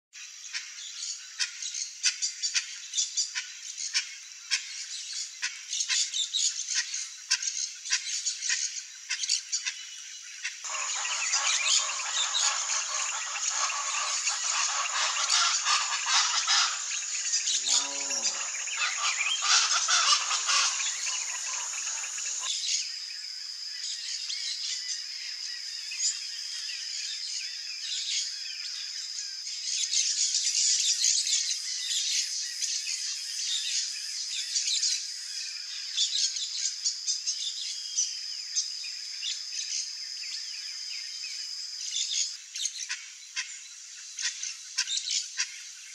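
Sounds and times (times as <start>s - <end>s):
insect chorus: 0.2s - 45.9s
small birds chirping: 6.0s - 22.9s
high hiss: 10.7s - 22.5s.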